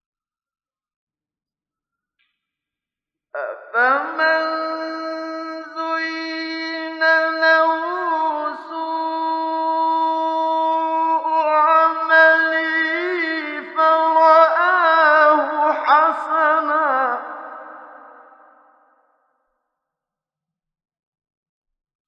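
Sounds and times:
man reciting melodically: 3.4 - 18.4.

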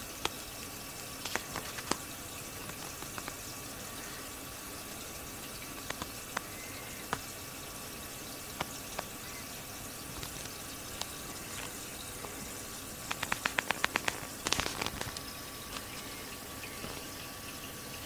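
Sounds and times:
water drips: 0.0 - 18.0
water trickling: 0.0 - 18.0
sharp clicks: 5.7 - 7.3, 13.0 - 15.9.

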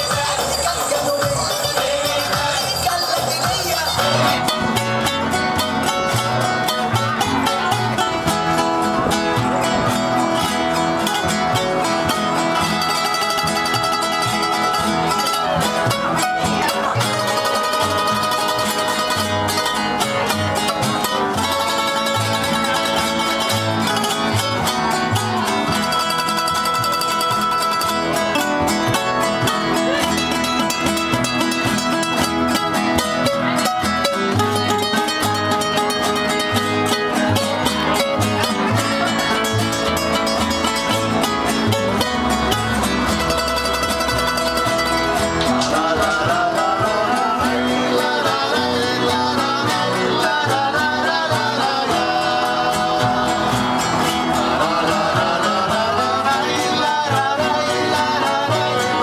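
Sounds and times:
classical guitars strummed and picked: 0.0 - 59.0
plucked upright bass: 0.0 - 59.0.

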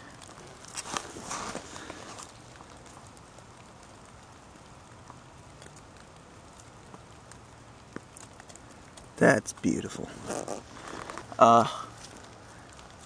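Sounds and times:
small water drips: 0.0 - 9.7, 11.7 - 13.0
light rain hiss: 0.0 - 13.0
handling rustle: 0.1 - 3.1, 9.6 - 13.0.

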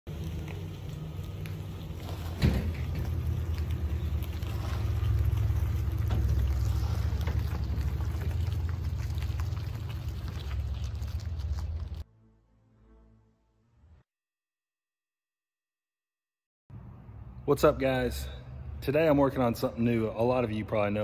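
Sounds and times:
pickup truck driving past: 0.1 - 12.0.

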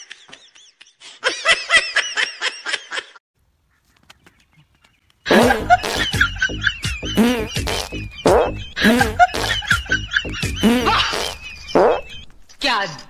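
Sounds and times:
person laughing: 5.3 - 12.2.

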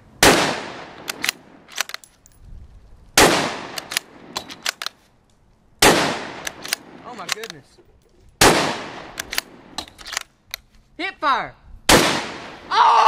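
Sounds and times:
rifle shots echoing: 0.2 - 1.9, 3.2 - 4.8, 5.8 - 7.5, 8.4 - 10.2, 11.9 - 12.7
rifle bolt metallic clicks: 1.0 - 2.4, 3.7 - 5.4, 6.4 - 8.3, 9.0 - 10.8.

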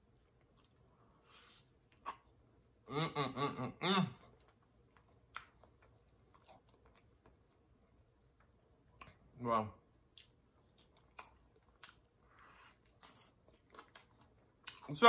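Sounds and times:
person making wavering vocal sound: 2.9 - 4.2.

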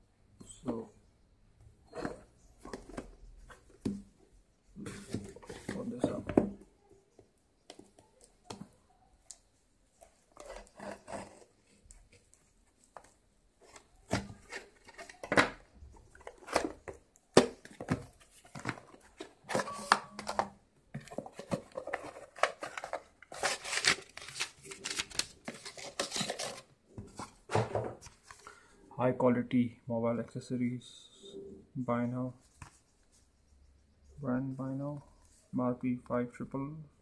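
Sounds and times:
cardboard scraping and rustling: 21.0 - 28.3.

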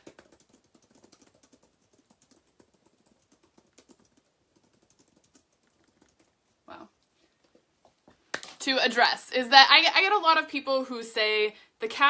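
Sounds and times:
typing on computer keyboard: 0.0 - 6.4.

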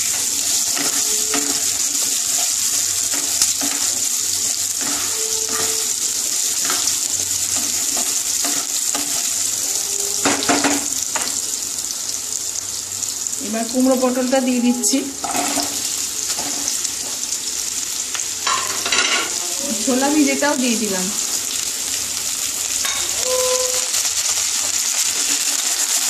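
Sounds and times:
wooden spatula scraping a pan: 0.0 - 10.6, 22.8 - 25.7
potatoes sizzling in oil: 0.0 - 26.0.

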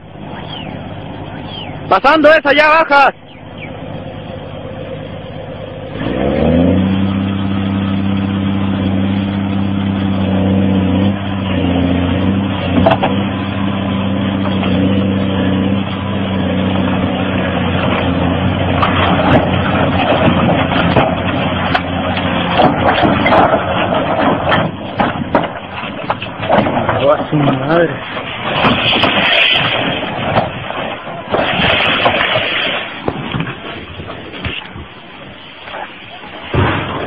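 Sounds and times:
excavator diesel engine revving: 0.0 - 37.0
rocks crackling and clattering: 11.0 - 37.0.

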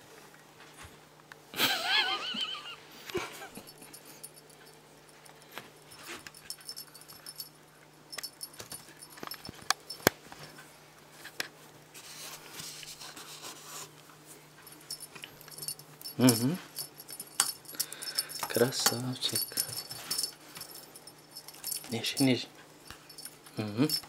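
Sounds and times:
faint jingling: 3.4 - 10.1, 14.6 - 24.0
rustling: 8.2 - 24.0.

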